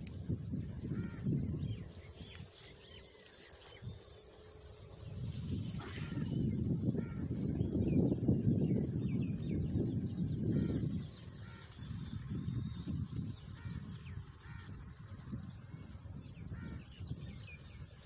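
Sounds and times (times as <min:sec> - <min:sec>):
faint bird calls: 0:00.7 - 0:04.1, 0:05.5 - 0:07.9, 0:09.5 - 0:15.4, 0:16.3 - 0:17.6.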